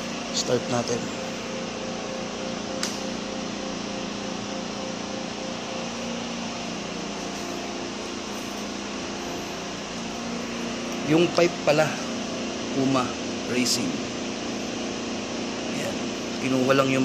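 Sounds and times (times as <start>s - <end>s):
steady mechanical hum: 0.0s - 17.0s
sharp click: 2.8s - 3.1s.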